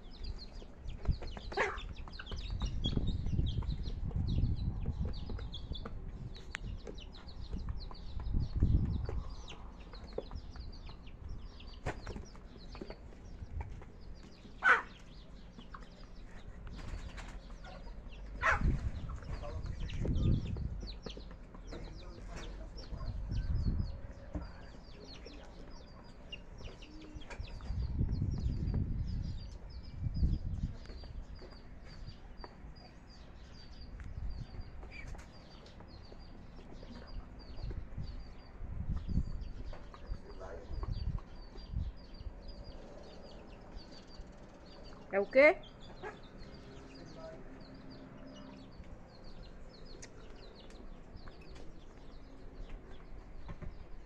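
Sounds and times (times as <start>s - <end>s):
chickens clucking: 0.2s - 28.9s, 34.8s - 45.0s, 45.8s - 47.1s
fowl chirping: 14.5s - 19.5s.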